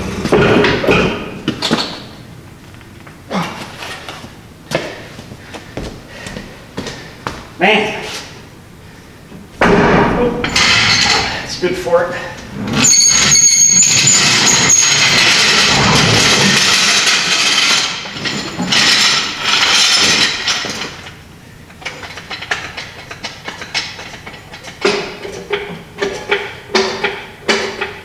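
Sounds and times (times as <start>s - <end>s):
rolling rattling metal clatter: 12.6s - 21.2s, 21.8s - 28.0s
metal clanks and ticks: 21.8s - 28.0s.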